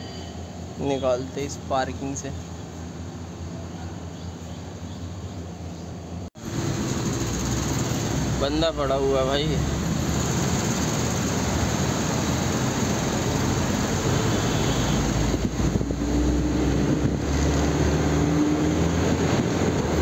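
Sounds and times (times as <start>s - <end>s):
road noise: 0.0s - 20.0s
engine whine: 6.0s - 20.0s
truck engine running: 6.4s - 20.0s.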